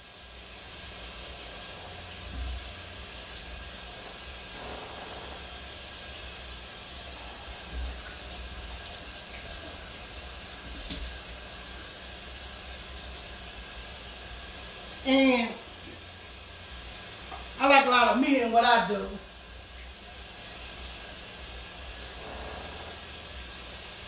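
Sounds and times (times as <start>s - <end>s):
faucet running: 0.0s - 24.0s.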